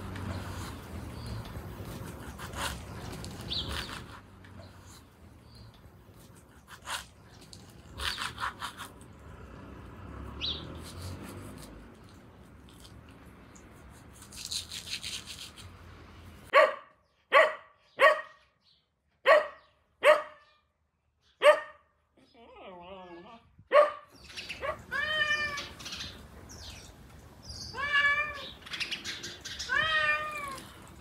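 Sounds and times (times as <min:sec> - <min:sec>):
dog barking: 0:16.5 - 0:18.4, 0:19.2 - 0:20.6, 0:21.4 - 0:21.9, 0:23.7 - 0:24.8.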